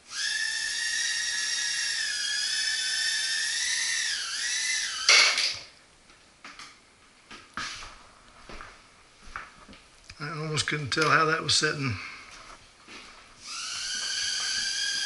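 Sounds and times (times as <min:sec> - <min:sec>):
quadcopter motors whining: 0:00.0 - 0:05.4, 0:13.4 - 0:15.0.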